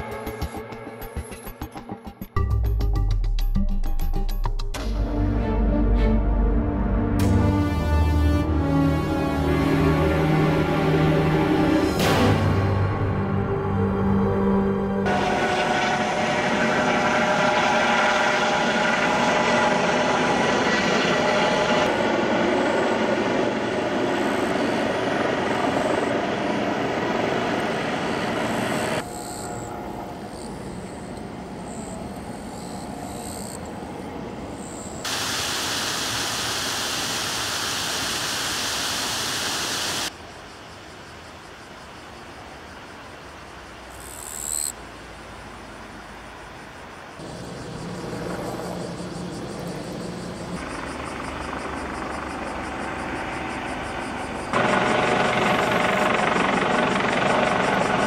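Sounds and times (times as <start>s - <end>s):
riverside hiss: 35.0s - 40.2s.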